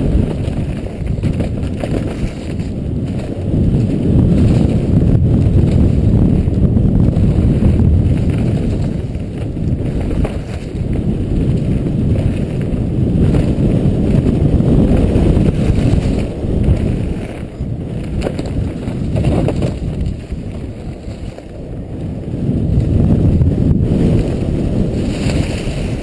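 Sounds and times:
bike rattles and knocks: 0.0 - 21.6
wind rumbling on microphone: 0.0 - 26.0.

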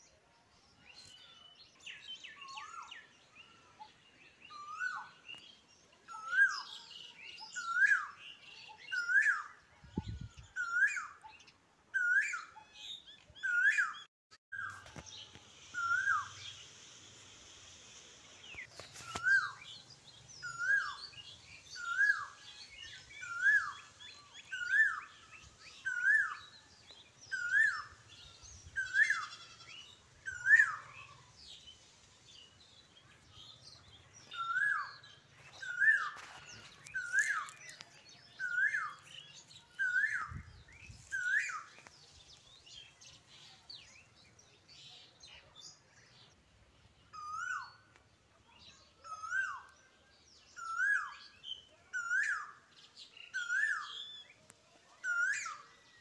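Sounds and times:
bird chirping: 0.0 - 56.0
faint bird twittering: 1.1 - 46.4.

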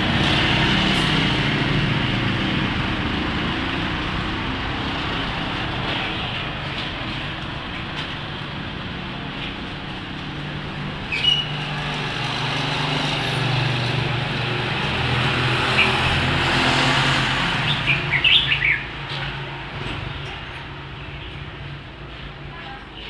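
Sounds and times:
passing traffic: 0.0 - 23.0
bird chirps: 11.1 - 11.5, 17.7 - 18.9.

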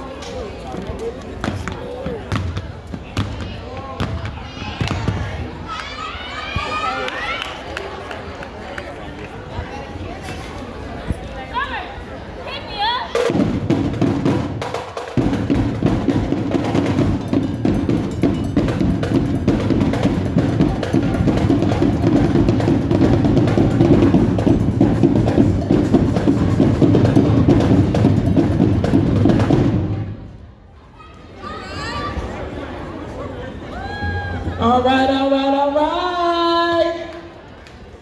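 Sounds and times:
drumline playing fast cadence: 12.7 - 30.4
bass drum: 13.2 - 30.1.

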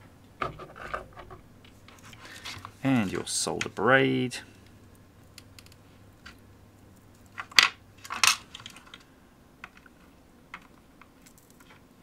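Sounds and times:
faint clicks: 4.6 - 5.8
sharp solder crackles: 4.8 - 7.4.

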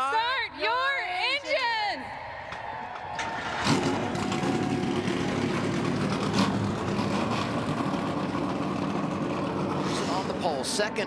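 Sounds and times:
race car engine starting and idling: 3.1 - 11.0.

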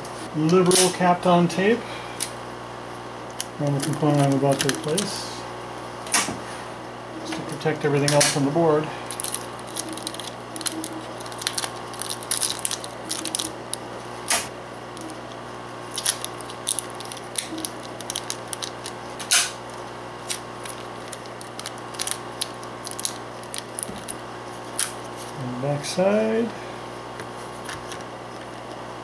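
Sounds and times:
steady low hum: 0.0 - 29.0
tape peeling crackles and clicks: 3.2 - 5.2, 9.1 - 25.4, 27.2 - 28.8.

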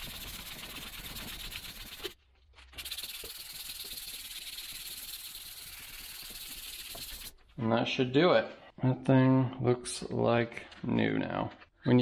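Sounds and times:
sandpaper rasping on metal: 0.0 - 2.2, 2.8 - 7.3.

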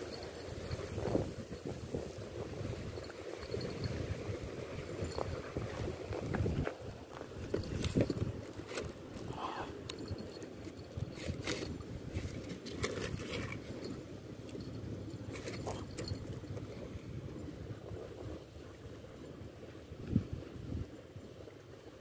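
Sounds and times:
low rumble of wind: 0.0 - 22.0
water at the shore: 0.0 - 22.0
scrapes and clicks on rocks: 5.0 - 16.8.

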